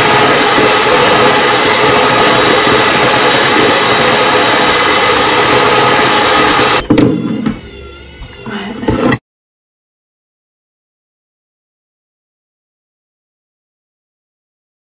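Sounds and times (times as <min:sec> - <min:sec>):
electric hand mixer whirring: 0:00.0 - 0:09.2
knock: 0:06.8 - 0:09.2.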